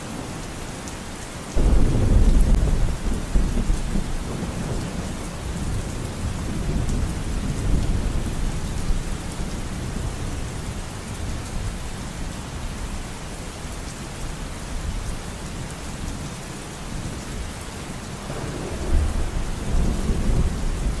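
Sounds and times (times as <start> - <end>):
steady rain: 0.0 - 21.0
low rumble of thunder: 1.6 - 13.0, 16.9 - 21.0.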